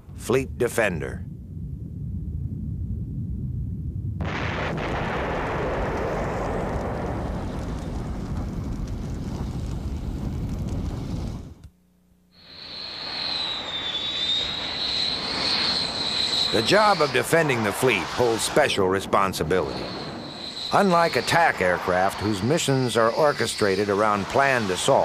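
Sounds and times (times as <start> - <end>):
low rumble: 0.0 - 11.6, 12.8 - 25.0
long rolling explosion: 0.1 - 11.6, 12.4 - 25.0
jet engines whining: 12.4 - 25.0.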